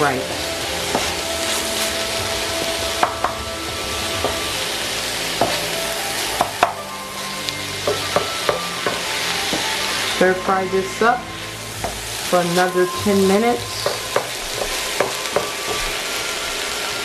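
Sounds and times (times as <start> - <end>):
vegetables sizzling in a pan: 0.0 - 17.0.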